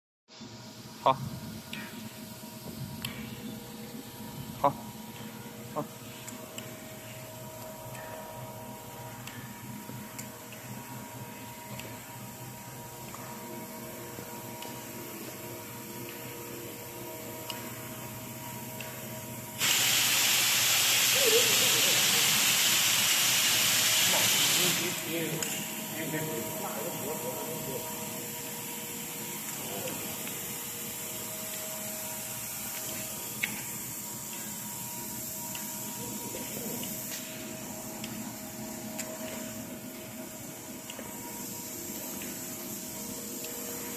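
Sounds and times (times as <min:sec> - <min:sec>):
workshop hum and hiss: 0:00.3 - 0:43.9
loud hiss: 0:19.6 - 0:29.8.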